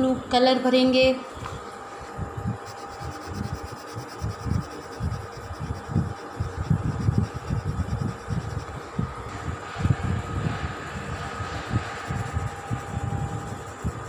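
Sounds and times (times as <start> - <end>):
faint steady hum: 0.0 - 14.0
pencil rubbing on paper: 2.6 - 8.7, 11.2 - 14.0.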